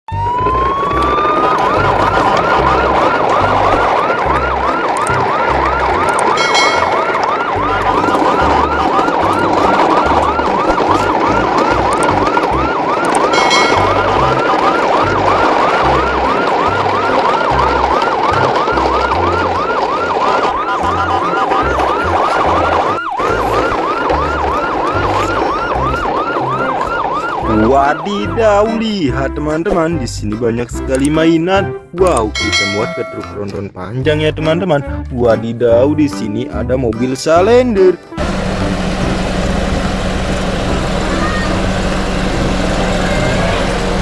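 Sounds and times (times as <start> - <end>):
electronic yelp siren wailing: 0.1 - 29.0.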